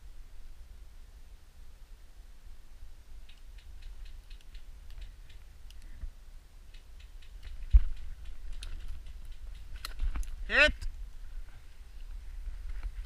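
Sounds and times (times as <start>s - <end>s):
faint clicks and ticks: 3.2s - 10.9s.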